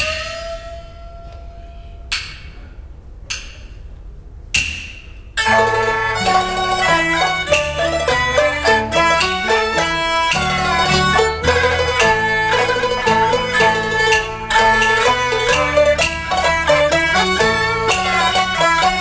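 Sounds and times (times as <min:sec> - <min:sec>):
sharp percussion strikes: 0:04.6 - 0:19.0
bowed fiddle melody: 0:05.4 - 0:19.0
plucked strings: 0:05.4 - 0:19.0.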